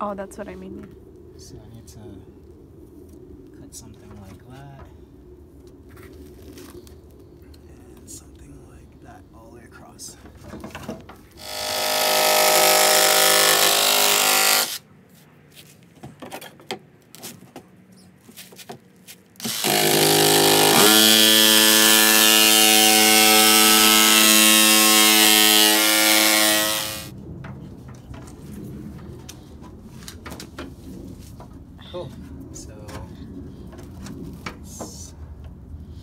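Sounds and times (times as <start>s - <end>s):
jigsaw cutting metal sheet: 11.4s - 14.8s, 19.4s - 27.1s.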